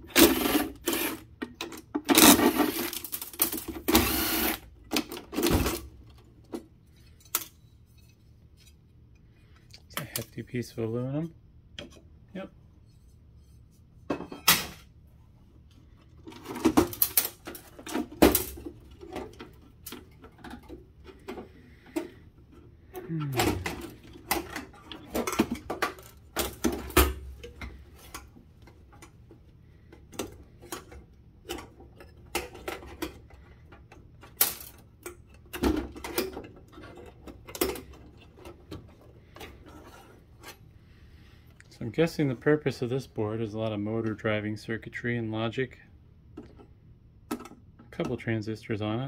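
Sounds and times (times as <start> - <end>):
clatter of metal parts: 0.2 - 4.2, 34.2 - 40.6.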